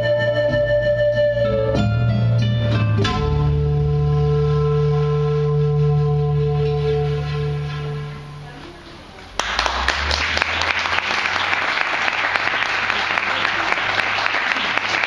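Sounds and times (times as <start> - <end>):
audience applauding: 9.3 - 15.0.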